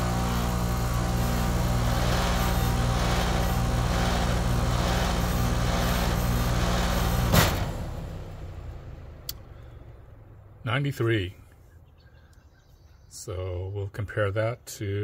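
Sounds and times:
air conditioner unit humming: 0.0 - 7.6.

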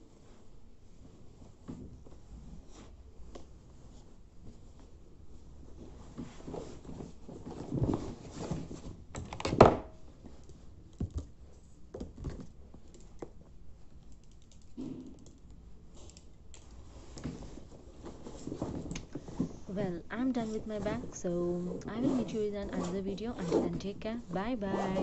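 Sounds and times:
fabric rustling: 0.0 - 9.1, 16.6 - 25.0.

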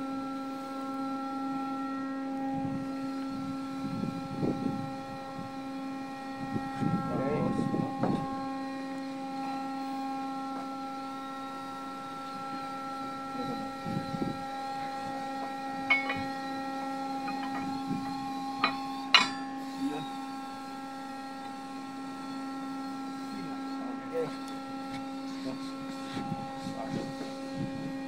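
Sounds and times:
machinery hum: 0.0 - 28.0
metal clinks and knocks: 15.9 - 16.4, 18.6 - 19.4.

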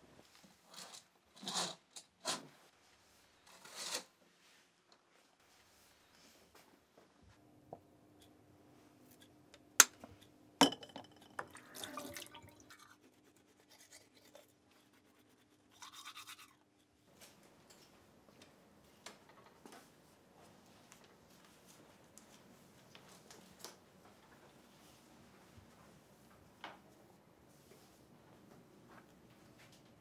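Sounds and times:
toothbrush scrubbing teeth: 11.6 - 17.0.

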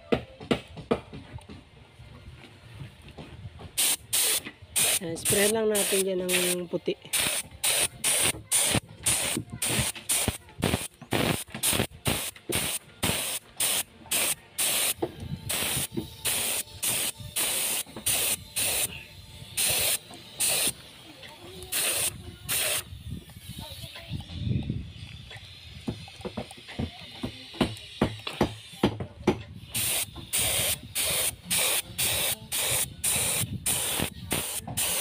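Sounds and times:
spray gun hissing bursts: 3.8 - 24.2, 29.6 - 35.0.

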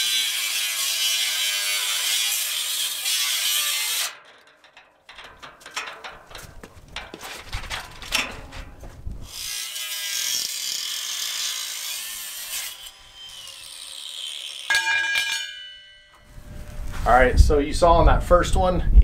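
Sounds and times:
angle grinder cutting steel: 0.0 - 4.8, 9.2 - 16.8
clicks and knocks: 4.2 - 9.0.

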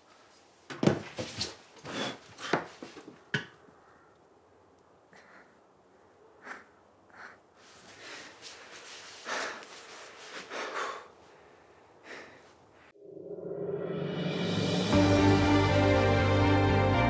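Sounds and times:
man breathing and sniffing: 1.8 - 3.1, 5.1 - 13.0.

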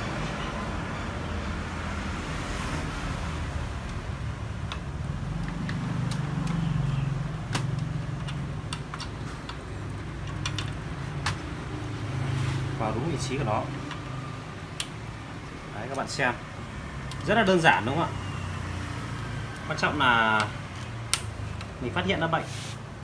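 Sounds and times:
road traffic rumble: 0.0 - 23.0
plastic clicks and taps: 7.5 - 9.6.

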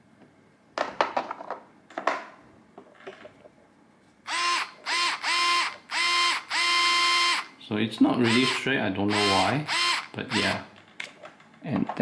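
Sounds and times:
cordless screwdriver whining: 4.3 - 7.5, 8.2 - 10.7.

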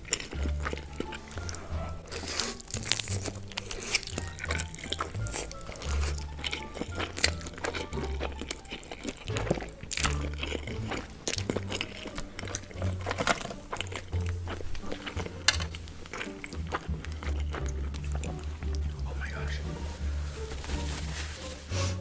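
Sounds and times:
background music with bass: 0.0 - 22.0
wet slurping and chewing: 0.0 - 22.0.

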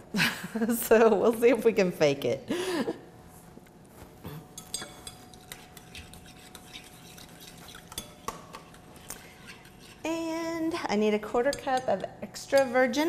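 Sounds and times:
spoon clinking on glass: 4.5 - 8.8
spoon stirring liquid: 4.5 - 12.9.

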